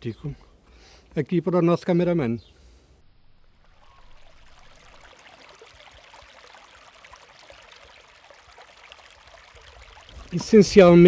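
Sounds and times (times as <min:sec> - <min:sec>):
shallow stream trickling over rocks: 0:03.3 - 0:11.0.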